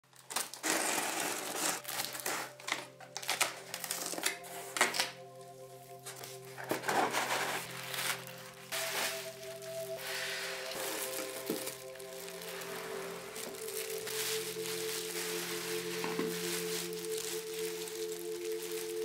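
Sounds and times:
packing tape tearing: 0.1s - 5.2s, 6.0s - 19.0s
soft background music: 0.1s - 19.0s
cardboard flaps rustling: 6.0s - 9.6s.

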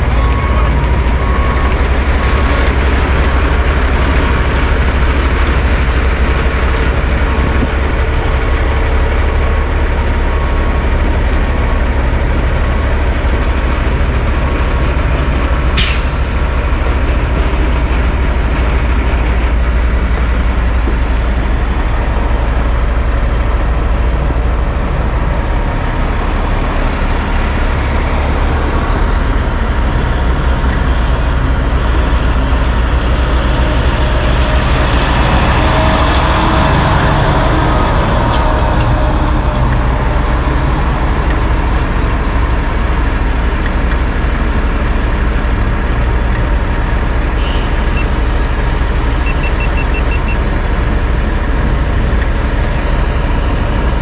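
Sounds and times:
diesel truck engine rumbling: 0.0s - 54.0s
air brake hiss: 15.8s - 16.4s, 47.3s - 48.4s.

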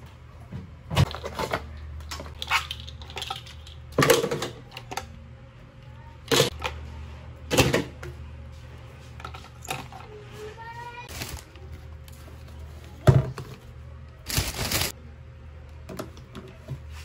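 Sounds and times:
hard plastic items clacking: 0.9s - 5.1s.

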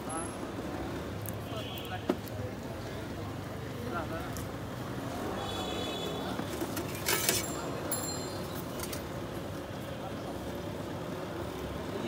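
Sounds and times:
metal utensils clinking: 6.9s - 9.0s.

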